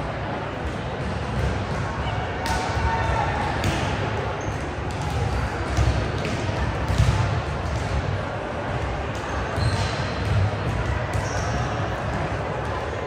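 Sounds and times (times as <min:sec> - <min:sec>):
crowd voices: 0:00.0 - 0:13.0
volleyball thumps: 0:03.4 - 0:04.0, 0:04.8 - 0:13.0
sneaker squeaks on court floor: 0:09.3 - 0:10.4, 0:11.0 - 0:11.8.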